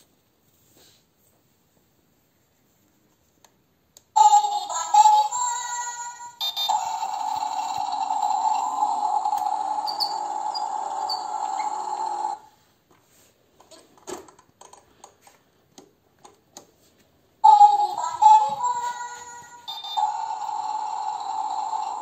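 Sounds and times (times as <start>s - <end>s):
toy scooter electronic sound: 4.2s - 12.5s, 17.4s - 22.0s.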